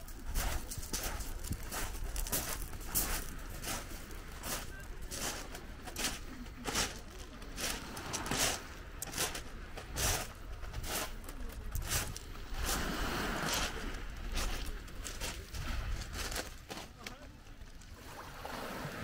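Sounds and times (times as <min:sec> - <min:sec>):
footsteps crunching on pebbles: 0:00.0 - 0:17.2
wave hissing over pebbles: 0:06.8 - 0:09.4, 0:12.0 - 0:15.5.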